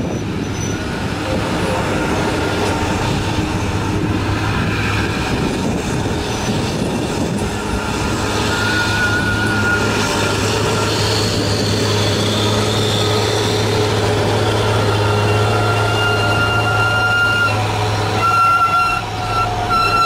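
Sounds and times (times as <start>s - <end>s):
heavy truck diesel engines droning: 0.0s - 20.0s.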